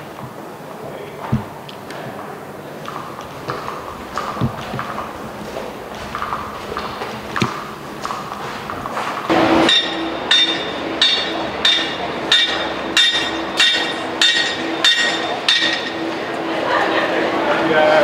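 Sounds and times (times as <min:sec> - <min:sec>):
church bell ringing: 0:09.3 - 0:16.5.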